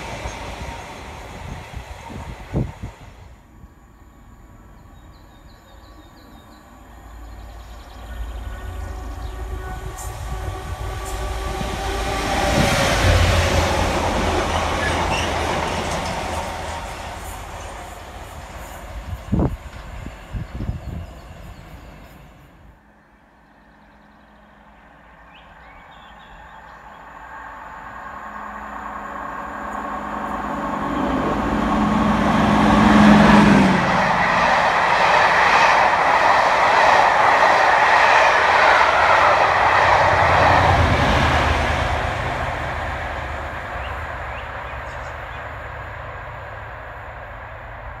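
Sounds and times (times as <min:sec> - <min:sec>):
locomotive engine hum: 0:06.2 - 0:22.7, 0:27.6 - 0:48.0
wheels clattering over rail joints: 0:14.5 - 0:18.7.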